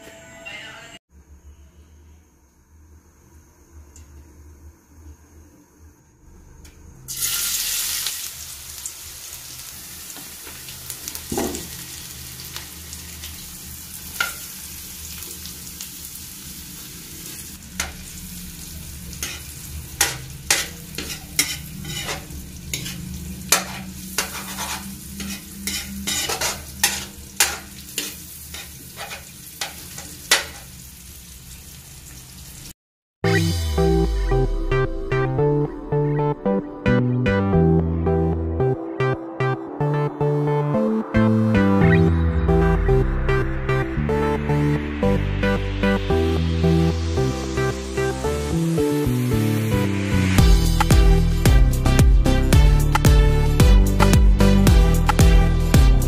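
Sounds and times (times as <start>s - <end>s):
garlic sizzling in oil: 7.1s - 32.8s
metal spatula scraping wok: 17.7s - 30.8s.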